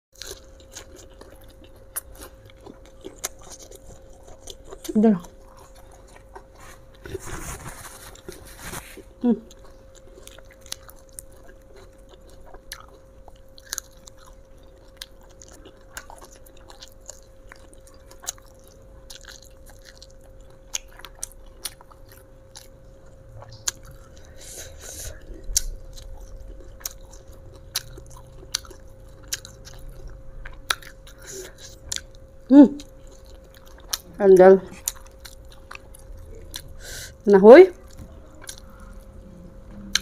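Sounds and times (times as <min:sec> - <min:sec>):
chewing crunchy vegetables: 0:00.1 - 0:40.0
faint steady hum: 0:00.2 - 0:40.0.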